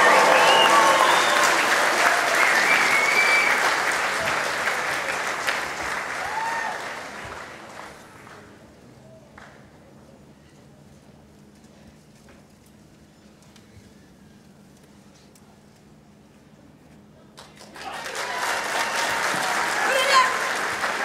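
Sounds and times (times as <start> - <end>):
crowd shouts and calls: 0.0 - 1.6
crowd applauding: 0.0 - 8.6, 17.4 - 21.0.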